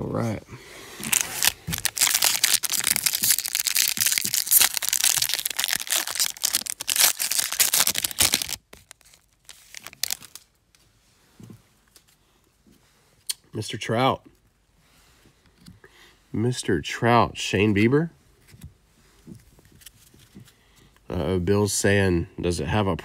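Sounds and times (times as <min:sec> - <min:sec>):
foil wrapper tearing and crinkling: 0:01.0 - 0:10.5.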